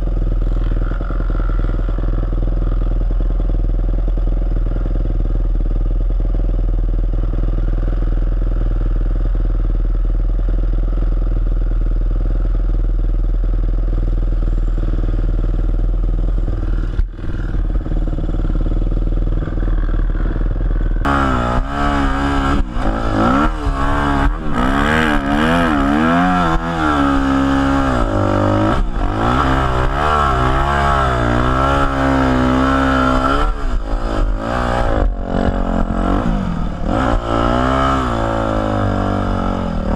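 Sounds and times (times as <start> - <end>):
dirt bike engine idling and revving: 0.0 - 39.9.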